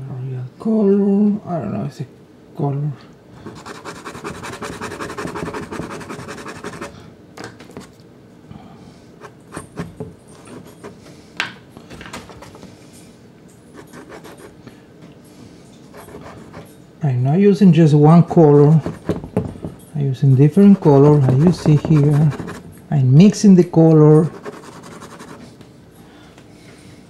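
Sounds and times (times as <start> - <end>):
pastel scratching on card: 3.5 - 7.0, 13.8 - 14.6, 16.0 - 16.7, 18.7 - 19.2, 20.6 - 22.6, 24.2 - 25.5
pastel stick tapping on card: 21.2 - 22.3.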